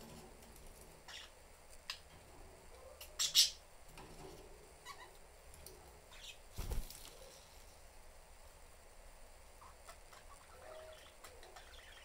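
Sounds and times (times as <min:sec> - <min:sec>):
budgerigars chirping: 0:01.1 - 0:01.4, 0:09.6 - 0:12.0.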